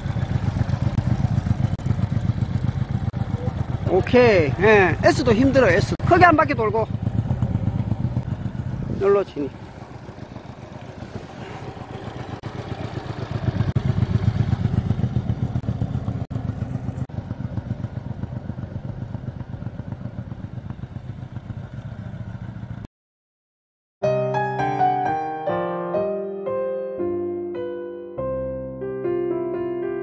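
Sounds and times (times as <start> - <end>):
motorcycle engine at low speed: 0.0 - 22.9
piano tune: 24.0 - 30.0.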